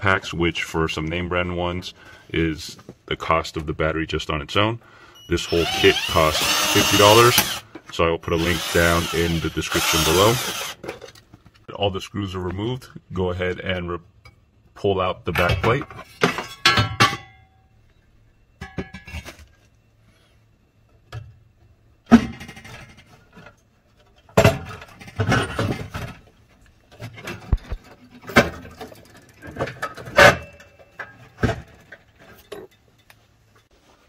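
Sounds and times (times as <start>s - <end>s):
metal clanks scrapes and rattles: 18.6s - 19.6s, 22.1s - 26.3s, 26.9s - 33.7s.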